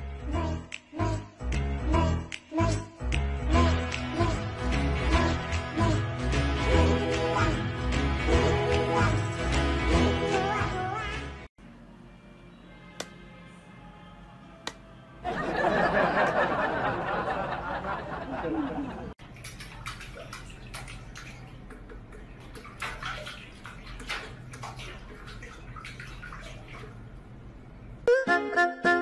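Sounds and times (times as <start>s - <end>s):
water splashing in a metal sink: 19.2s - 27.5s.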